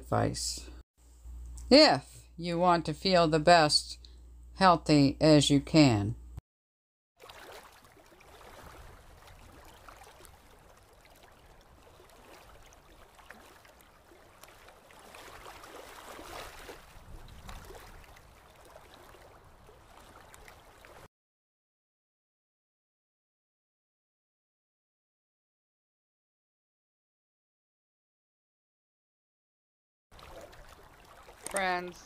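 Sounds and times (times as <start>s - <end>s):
small waves washing onto sand: 7.2s - 21.1s.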